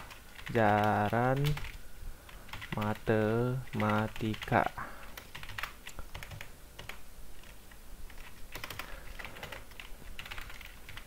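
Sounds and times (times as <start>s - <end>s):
keyboard typing clicks: 5.2s - 11.0s.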